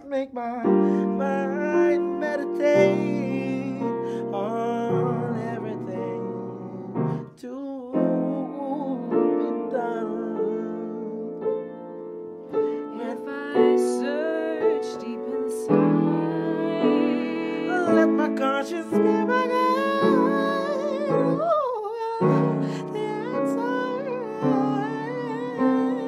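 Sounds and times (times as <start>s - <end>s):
person singing: 0.0s - 11.8s, 12.5s - 26.0s
piano chords: 0.0s - 26.0s.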